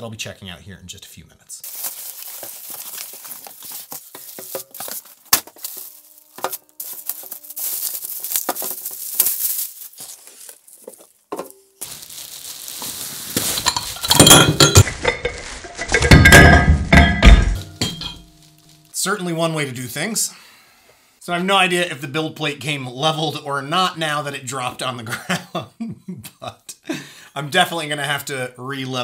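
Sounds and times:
plastic wrapping crinkling: 0:01.6 - 0:17.0, 0:18.3 - 0:19.0
metal plate clattering on floor: 0:13.6 - 0:18.4.

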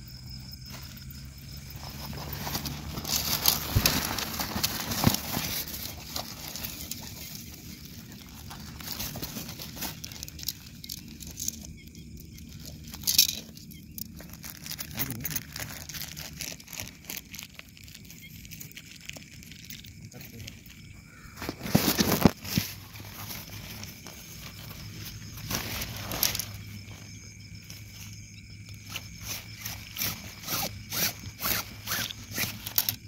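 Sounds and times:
plastic wrapping crinkling: 0:01.6 - 0:11.8, 0:12.4 - 0:27.1
tent poles clicking and knocking: 0:01.8 - 0:11.6, 0:19.6 - 0:26.7, 0:28.8 - 0:33.0.

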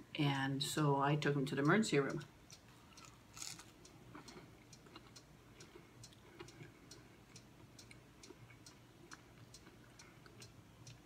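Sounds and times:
faint steady ticking: 0:00.0 - 0:11.0.

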